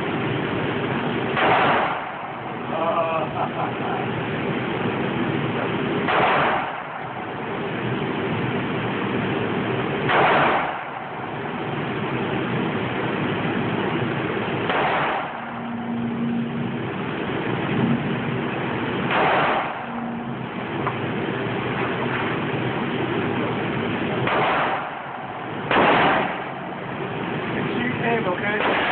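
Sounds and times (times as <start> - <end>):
steady background roar: 0.0 - 28.9
handgun shots echoing indoors: 1.4 - 2.3, 6.1 - 7.1, 10.1 - 11.1, 14.7 - 15.5, 19.1 - 20.1, 24.2 - 26.7, 28.6 - 28.9.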